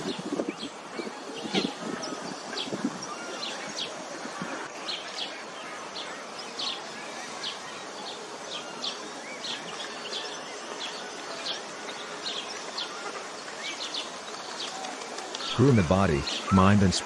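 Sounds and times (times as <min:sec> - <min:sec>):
small birds chirping: 0:00.0 - 0:17.0
steady outdoor hiss: 0:00.0 - 0:17.0.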